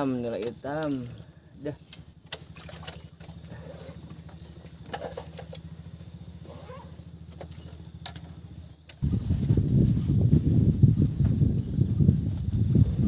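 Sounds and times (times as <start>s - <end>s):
low pulsing motor drone: 0.0s - 13.0s.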